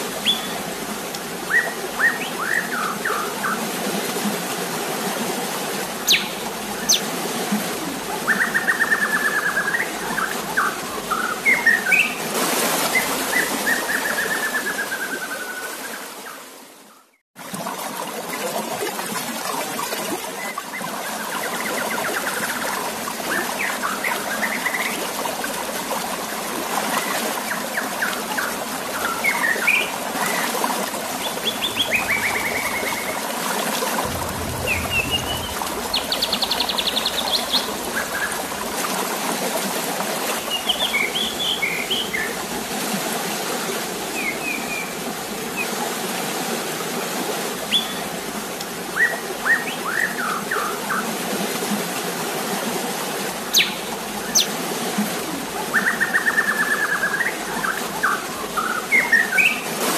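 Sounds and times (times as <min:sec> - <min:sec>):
bird chirps and calls: 0:06.1 - 0:07.0
running water splashing: 0:21.9 - 0:44.0.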